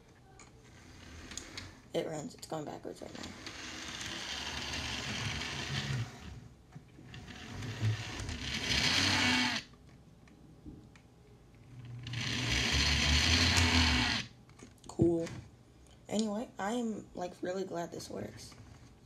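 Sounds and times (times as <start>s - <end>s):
model train motor whirring: 0.6s - 1.8s, 3.0s - 6.4s, 7.1s - 9.7s, 11.8s - 14.3s.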